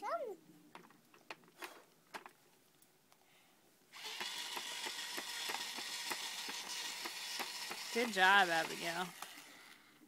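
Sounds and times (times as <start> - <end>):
toy drill whirring and clicking: 4.0 - 10.0.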